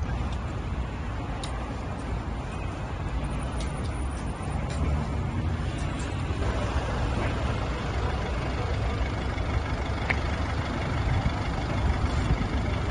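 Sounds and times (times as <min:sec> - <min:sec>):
minibus engine idling: 0:02.8 - 0:12.9.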